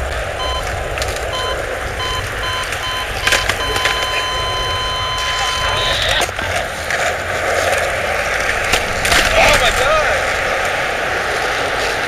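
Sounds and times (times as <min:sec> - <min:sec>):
skateboard wheels rolling: 0:00.0 - 0:12.0
electronic beeps: 0:00.4 - 0:00.7, 0:01.3 - 0:06.3.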